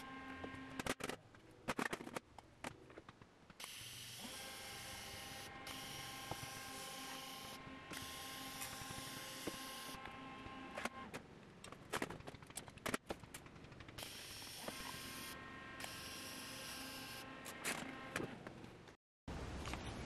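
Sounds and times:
welding arc hiss and whine: 0:03.6 - 0:10.6, 0:14.0 - 0:17.3.

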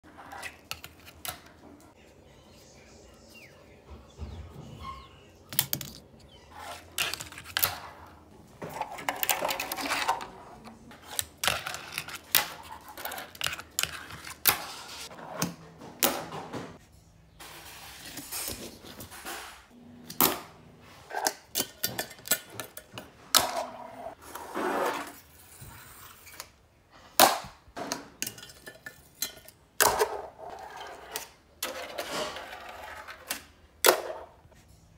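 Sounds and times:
small wheels rolling: 0:30.1 - 0:33.5.

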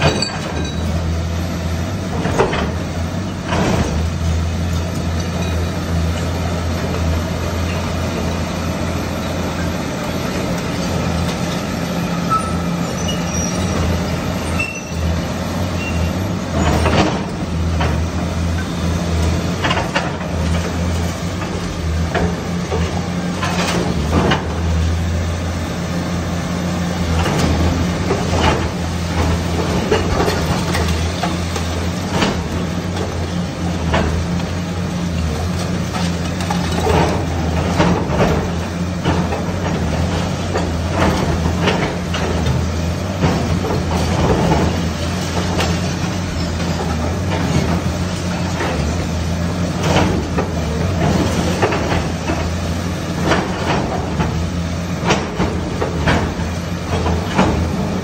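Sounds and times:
masonry crashing: 0:00.0 - 0:01.2
excavator diesel engine running: 0:00.0 - 0:58.0.

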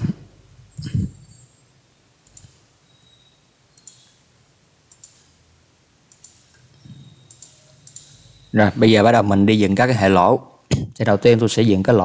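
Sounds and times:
computer mouse clicks: 0:02.2 - 0:02.7, 0:03.8 - 0:04.2, 0:04.9 - 0:05.4, 0:06.1 - 0:08.5.

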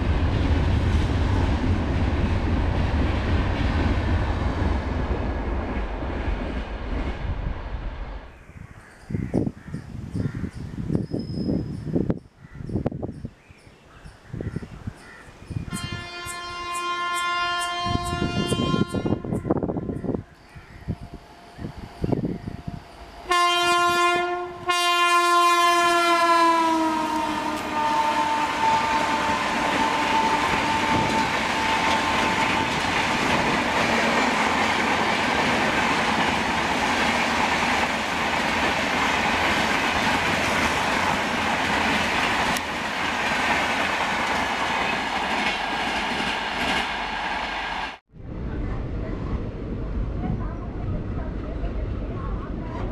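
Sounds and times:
passenger train rolling past: 0:00.0 - 0:13.2, 0:15.5 - 0:52.9
locomotive air horn blasts: 0:15.7 - 0:19.6, 0:23.2 - 0:32.8.

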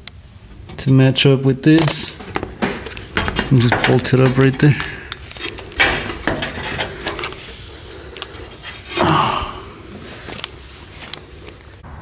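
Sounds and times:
breathy rush: 0:07.6 - 0:10.4.

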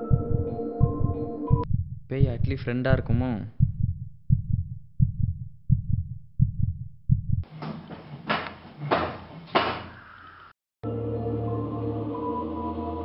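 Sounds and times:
heartbeat thumps: 0:00.0 - 0:07.5.

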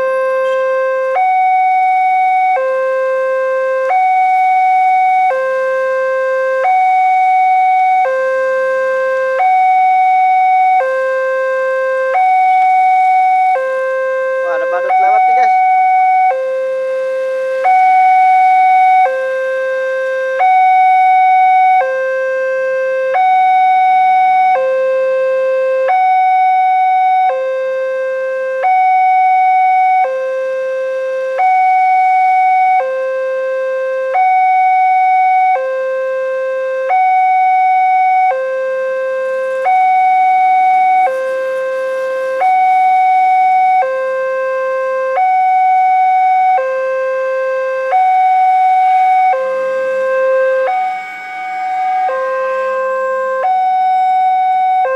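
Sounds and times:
two-tone crossing warning bell: 0:00.0 - 0:05.6, 0:10.6 - 0:22.2, 0:37.5 - 0:44.8.

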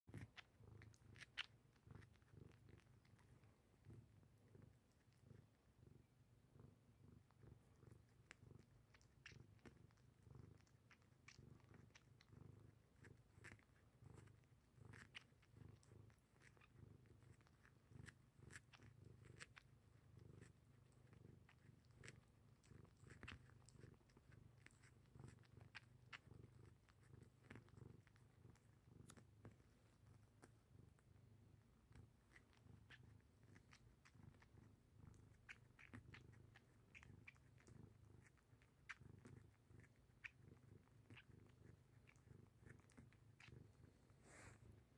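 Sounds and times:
cat purring: 0:00.0 - 0:44.9
soft suckling clicks: 0:00.1 - 0:05.5.

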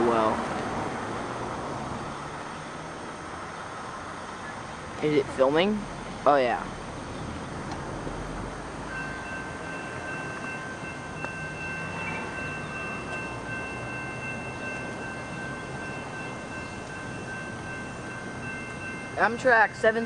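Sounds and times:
road traffic: 0:00.0 - 0:20.0
crossing warning bell ringing: 0:08.2 - 0:20.0.

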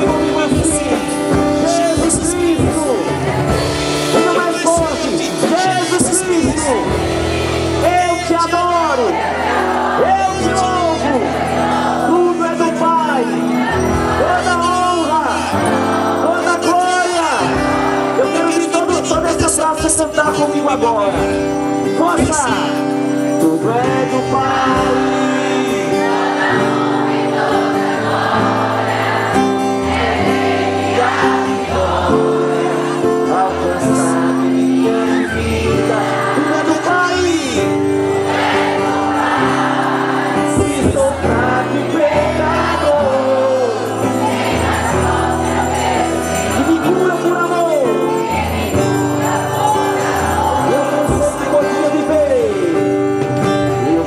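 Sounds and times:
worship singing: 0:00.0 - 0:54.0
shimmering high accents: 0:43.3 - 0:52.3.

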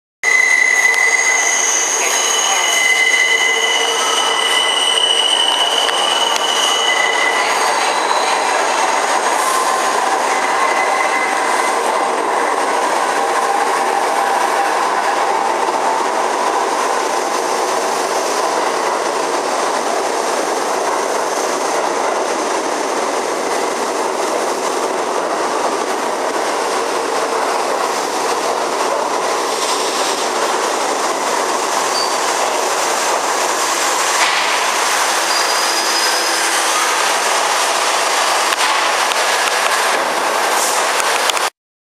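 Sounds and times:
train wheel squeal: 0:00.2 - 0:16.1, 0:31.8 - 0:32.7, 0:33.8 - 0:37.5
train wheels rumbling and clattering: 0:04.0 - 0:41.5.

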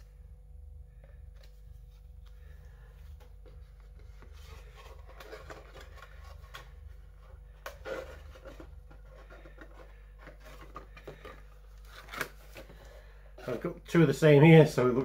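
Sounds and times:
cardboard rustle: 0:03.2 - 0:12.8
cardboard rubbing and scraping: 0:03.4 - 0:12.5.

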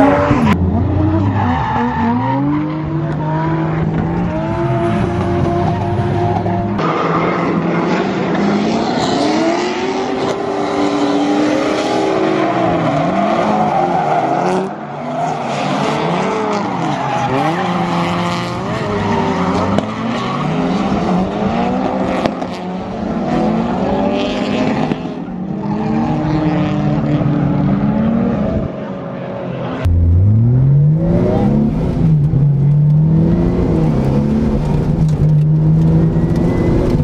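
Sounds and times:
tyres squealing and skidding: 0:00.0 - 0:04.8, 0:05.4 - 0:08.4, 0:10.4 - 0:21.2
car engines revving: 0:00.0 - 0:37.0.

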